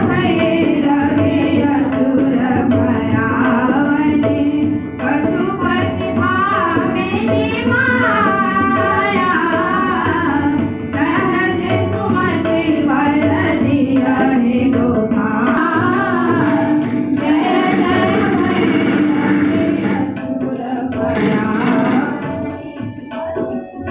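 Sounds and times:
harmonium: 0:00.0 - 0:23.9
tabla: 0:00.0 - 0:23.9
girls singing together: 0:15.4 - 0:22.9.

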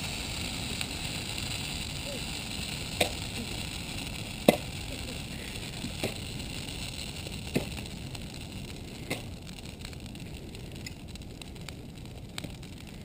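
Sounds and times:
fire roaring with pops and crackles: 0:00.0 - 0:13.0.

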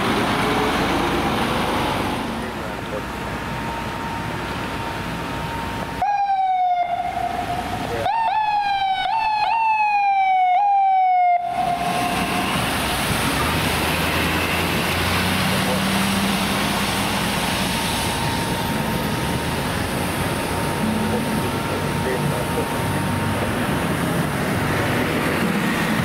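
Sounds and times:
traffic noise: 0:00.0 - 0:26.0
ambulance electronic siren: 0:03.4 - 0:12.9, 0:17.7 - 0:23.5.

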